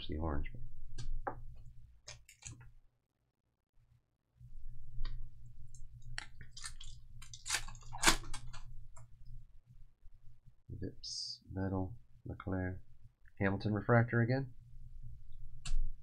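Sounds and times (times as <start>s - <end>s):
foil wrapper tearing and crinkling: 6.2s - 8.6s.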